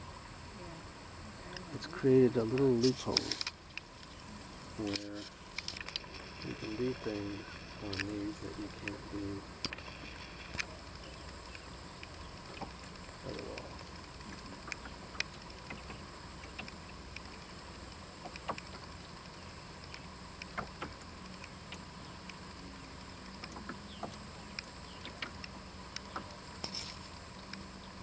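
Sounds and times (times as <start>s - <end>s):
low steady hum: 0.0s - 28.0s
small clicks and splashes: 2.4s - 4.2s, 4.8s - 6.6s, 9.6s - 28.0s
water lapping against boat hull: 5.2s - 28.0s.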